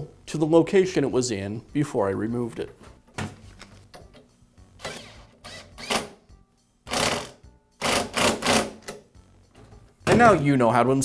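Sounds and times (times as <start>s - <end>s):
cordless drill driving a nut: 4.8s - 6.2s, 6.9s - 8.8s.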